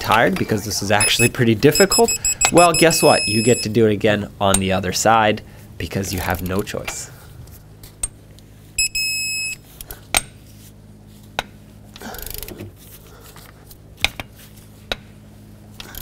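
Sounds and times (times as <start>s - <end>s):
torque wrench beep: 1.0s - 3.7s, 8.8s - 9.6s.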